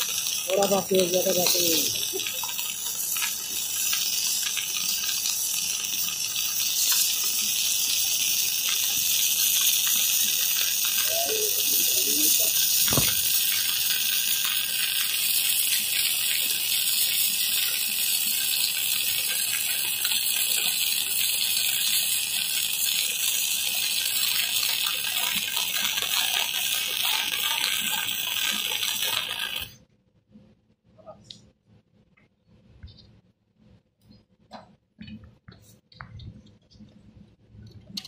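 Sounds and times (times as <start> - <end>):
welding arc crackling and hissing: 0.0 - 29.8.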